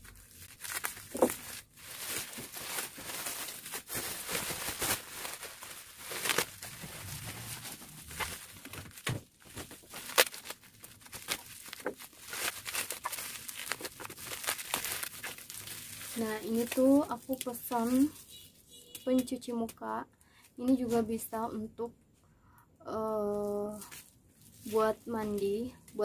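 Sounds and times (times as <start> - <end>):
scissors cutting bubble wrap: 0.0 - 18.1
plastic crinkling and crackling: 0.0 - 18.4, 23.2 - 26.0.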